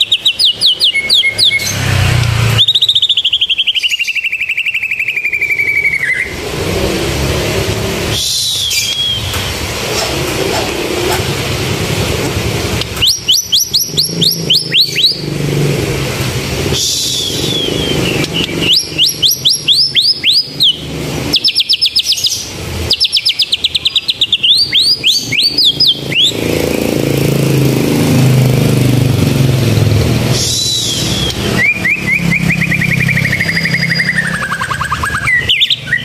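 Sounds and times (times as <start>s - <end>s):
bird singing fast trills: 0.0s - 7.4s, 8.0s - 9.4s, 12.8s - 15.7s, 16.7s - 36.0s
road traffic rumble: 0.0s - 36.0s.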